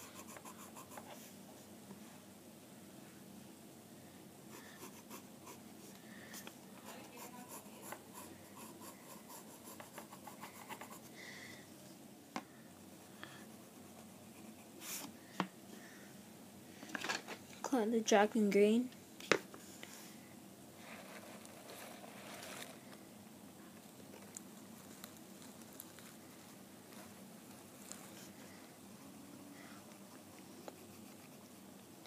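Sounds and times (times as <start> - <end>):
pencil scribbling on paper: 0.0 - 1.3, 4.5 - 5.9, 6.8 - 11.2, 12.9 - 15.1, 30.1 - 31.7.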